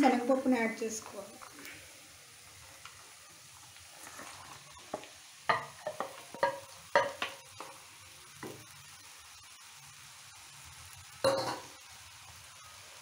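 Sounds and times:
faint pan sizzle: 0.0s - 13.0s.

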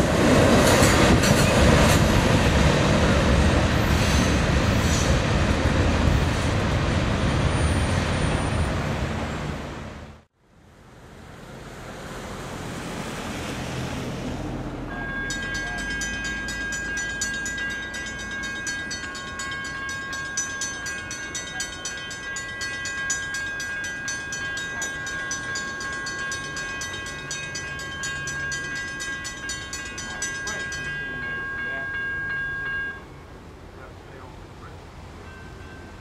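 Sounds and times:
railroad crossing bell ringing: 14.9s - 36.0s.

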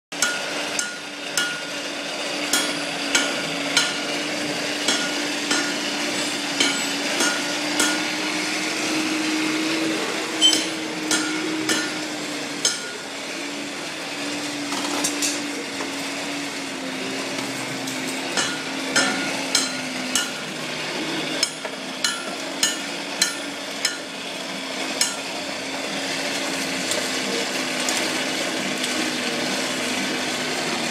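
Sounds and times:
hammer striking iron on anvil: 0.2s - 1.8s, 2.5s - 8.2s, 10.4s - 13.1s, 18.2s - 20.6s, 21.4s - 24.2s, 25.0s - 25.3s
forge air blast hum: 0.2s - 14.7s.

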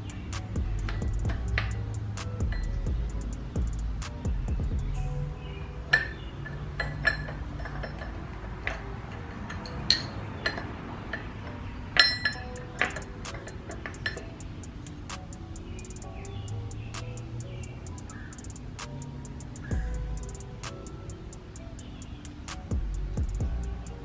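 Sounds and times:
metal tool clinking on engine parts: 0.8s - 2.9s, 5.4s - 18.3s.

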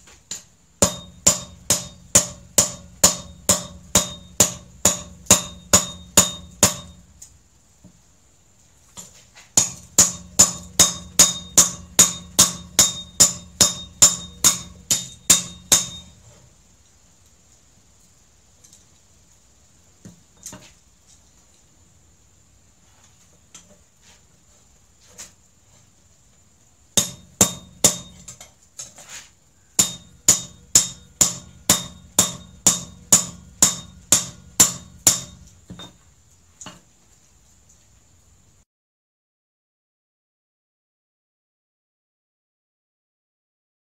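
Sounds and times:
hammer ringing on anvil: 0.8s - 7.0s, 9.6s - 16.2s, 27.0s - 28.3s, 29.8s - 36.0s.

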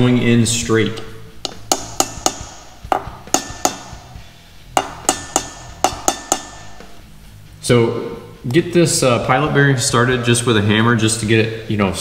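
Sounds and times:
hammer tapping on metal: 1.4s - 7.0s.

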